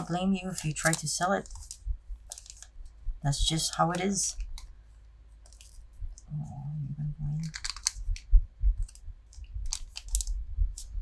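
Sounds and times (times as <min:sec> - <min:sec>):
foil wrapper crinkling: 0:00.2 - 0:02.8, 0:09.6 - 0:10.9.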